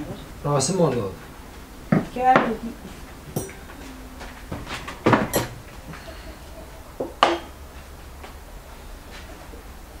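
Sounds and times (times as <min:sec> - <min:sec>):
metal spoon clinking on ceramic plates: 0:03.4 - 0:03.6, 0:05.2 - 0:05.6.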